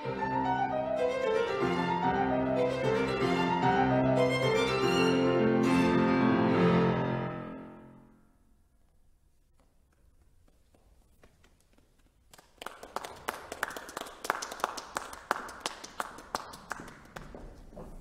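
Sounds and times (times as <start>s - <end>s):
audience applause: 12.2s - 17.7s.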